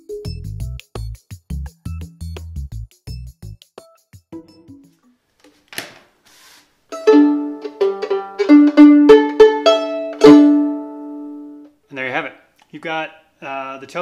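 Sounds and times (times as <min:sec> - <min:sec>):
brief rustle: 0:05.4 - 0:06.7
violin strings plucked: 0:06.9 - 0:11.7.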